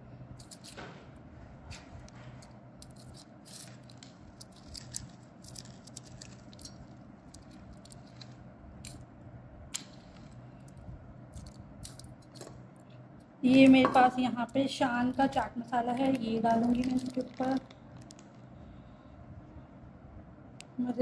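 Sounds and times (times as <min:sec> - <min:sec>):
steady low hum: 0:00.0 - 0:21.0
crisp wafers crackling: 0:02.8 - 0:09.0, 0:14.6 - 0:18.5.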